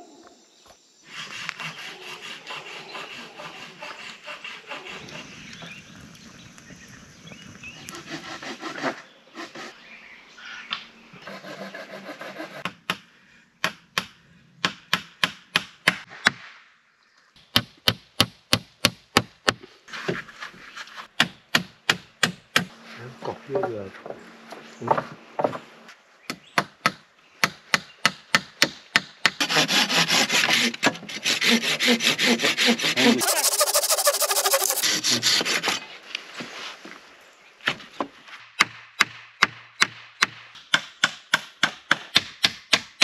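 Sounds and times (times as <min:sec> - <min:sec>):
hand saw cutting wood: 0:01.1 - 0:05.3, 0:07.8 - 0:09.8, 0:11.2 - 0:12.7, 0:29.3 - 0:35.9.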